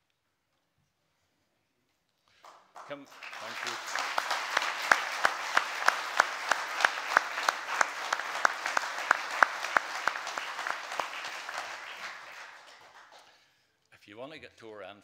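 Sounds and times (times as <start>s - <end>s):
close hand claps: 2.3s - 13.4s
congregation applauding: 2.3s - 13.6s.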